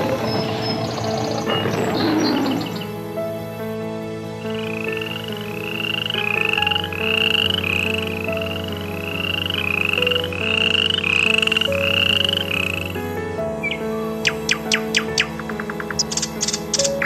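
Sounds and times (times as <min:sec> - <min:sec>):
frog calling: 0:04.6 - 0:17.0.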